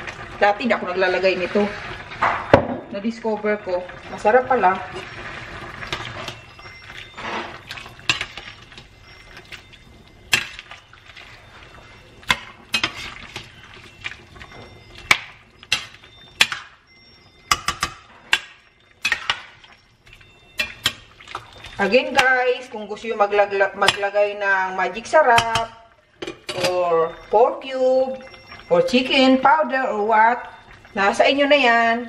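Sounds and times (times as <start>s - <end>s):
metal spoon scraping a pan: 4.7s - 8.9s, 12.2s - 13.9s, 14.6s - 16.7s, 17.5s - 19.6s, 20.5s - 22.4s, 23.7s - 24.4s.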